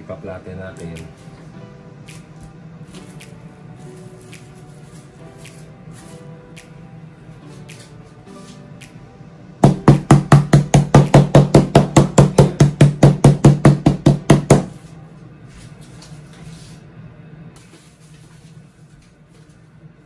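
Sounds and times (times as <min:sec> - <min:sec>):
meat mallet pounding chicken: 0:09.6 - 0:14.7.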